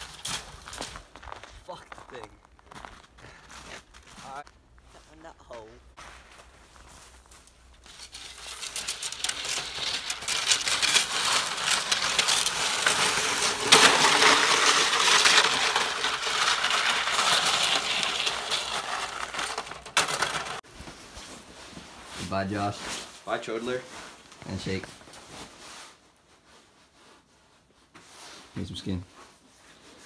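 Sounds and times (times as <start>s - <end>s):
sled runners scraping over icy snow: 6.0s - 20.6s.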